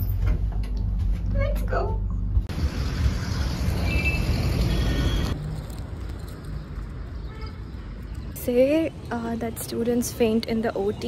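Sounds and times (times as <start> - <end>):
passing vehicles rushing: 2.4 - 10.9.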